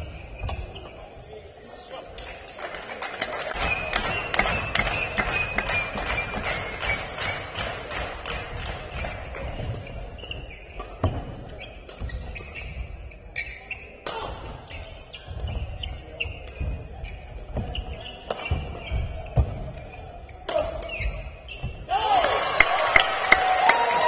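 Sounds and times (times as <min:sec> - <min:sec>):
shoes squeaking on court: 0:00.0 - 0:01.4, 0:08.6 - 0:21.9.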